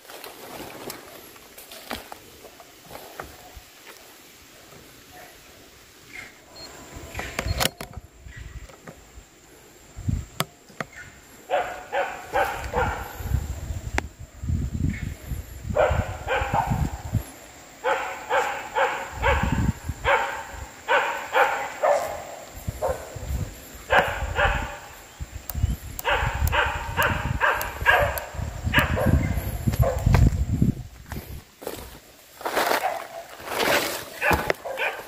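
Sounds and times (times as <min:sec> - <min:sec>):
dog barking: 0:11.5 - 0:13.2, 0:15.8 - 0:16.9, 0:17.8 - 0:23.2, 0:23.9 - 0:24.9, 0:26.0 - 0:30.1, 0:34.2 - 0:35.0.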